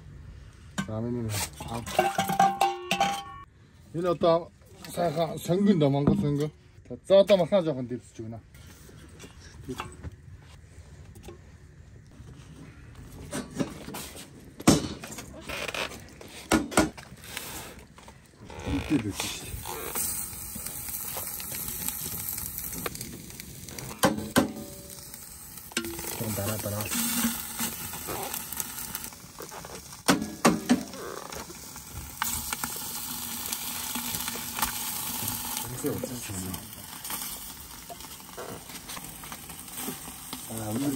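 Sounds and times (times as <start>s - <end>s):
metal tongs clanking on stones: 1.6s - 3.5s, 25.7s - 28.6s
hot stones sizzling on meat: 16.8s - 40.9s
steam hissing: 19.2s - 29.3s, 30.0s - 40.9s.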